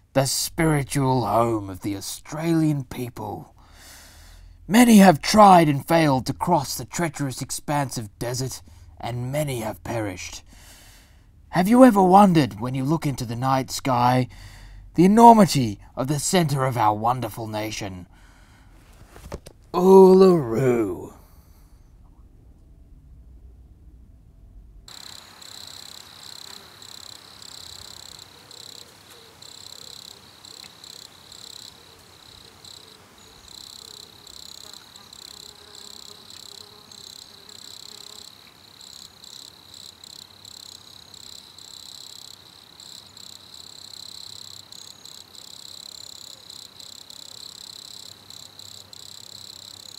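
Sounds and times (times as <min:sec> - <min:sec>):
crickets chirping: 0:24.9 - 0:49.9.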